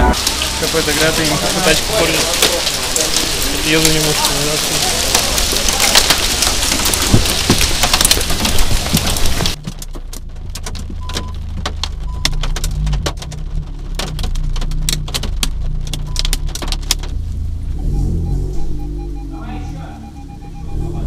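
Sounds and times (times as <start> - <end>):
loud rain hiss: 0.0 - 9.6
raindrops ticking on car roof: 0.0 - 19.2.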